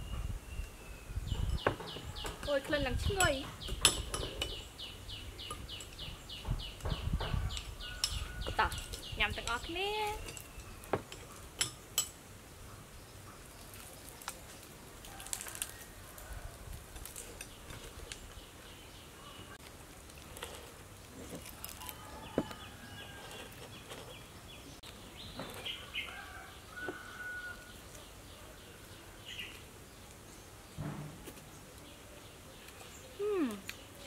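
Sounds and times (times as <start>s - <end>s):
birds chirping faintly: 0.0s - 16.4s
crunching fried chicken: 13.5s - 18.4s, 19.6s - 24.1s.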